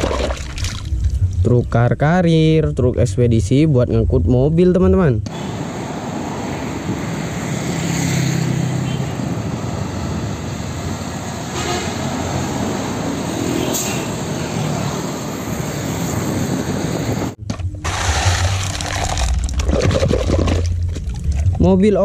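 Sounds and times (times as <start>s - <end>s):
truck engine rumble: 5.2s - 17.9s
cars passing: 5.3s - 17.4s
motorcycles passing: 5.3s - 17.4s.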